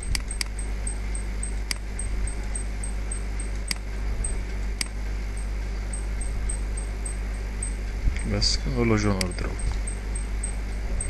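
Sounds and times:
computer mouse clicks: 0:00.0 - 0:00.6, 0:03.4 - 0:03.9
steady low hum: 0:00.0 - 0:11.0.

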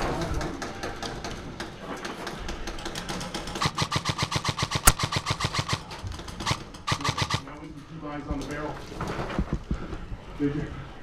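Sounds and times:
airsoft gun firing full auto: 0:03.5 - 0:07.5.

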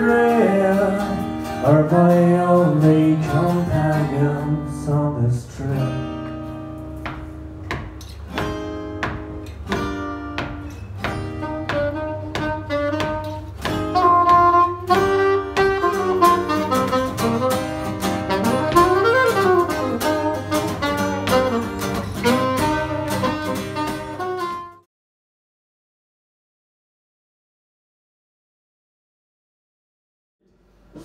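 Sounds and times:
acoustic guitar strumming chords: 0:00.0 - 0:24.8
saxophone melody: 0:08.6 - 0:24.9.

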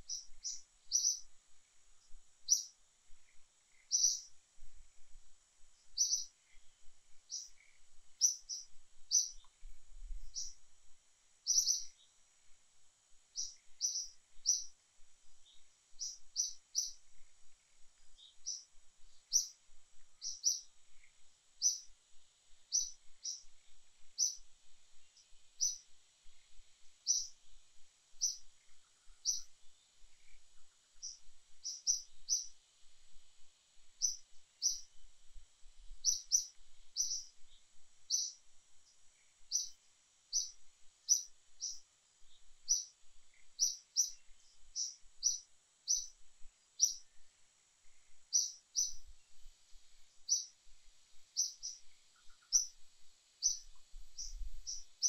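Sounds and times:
bird chirping: 0:00.0 - 0:04.4, 0:05.8 - 0:10.6, 0:11.4 - 0:12.2, 0:13.3 - 0:21.9, 0:22.6 - 0:32.6, 0:34.0 - 0:35.0, 0:35.9 - 0:49.5, 0:50.2 - 0:55.0
faint high-pitched hiss: 0:00.0 - 0:55.0.

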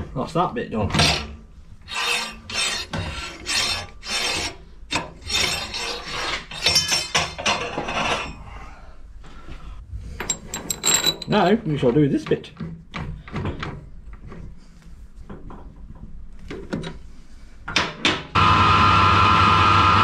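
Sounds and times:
metal bar scraping through lathe: 0:01.0 - 0:08.3.

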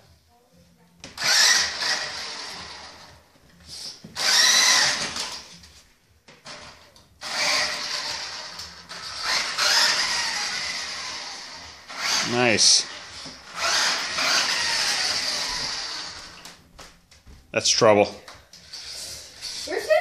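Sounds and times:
toy buggy electric motor whining: 0:01.2 - 0:03.1, 0:04.2 - 0:05.6, 0:07.2 - 0:16.4, 0:18.6 - 0:20.0.

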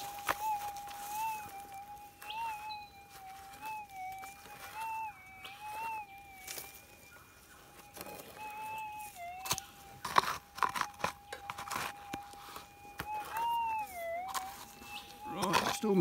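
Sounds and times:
metal detector threshold hum: 0:00.0 - 0:16.0
soil crunching in plastic scoop: 0:07.9 - 0:16.0.

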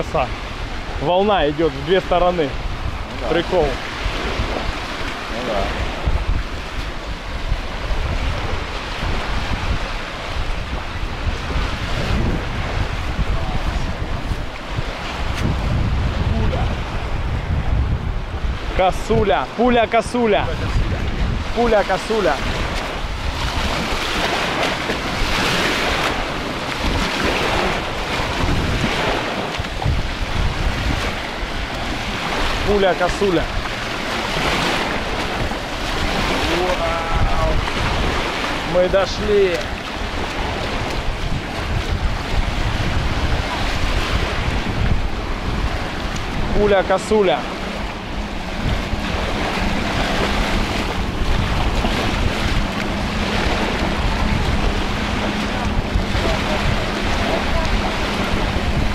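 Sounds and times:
surf washing on shore: 0:00.0 - 0:58.9
wind rumbling on microphone: 0:00.0 - 0:58.9.

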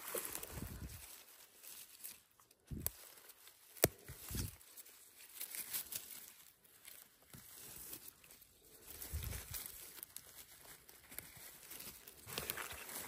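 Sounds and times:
rustling through undergrowth: 0:00.0 - 0:13.0.

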